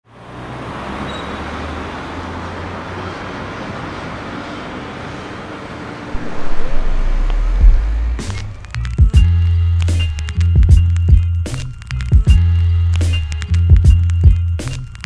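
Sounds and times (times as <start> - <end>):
cars passing: 0.1 - 8.8
deep bass rumble: 6.1 - 9.1.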